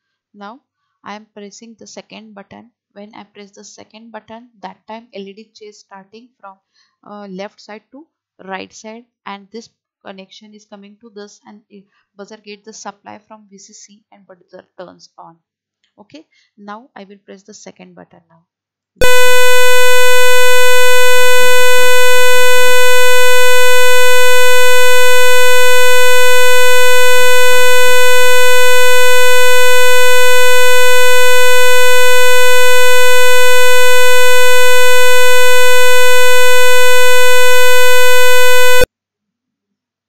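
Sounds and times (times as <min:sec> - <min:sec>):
steady electronic buzz: 0:19.0 - 0:38.9.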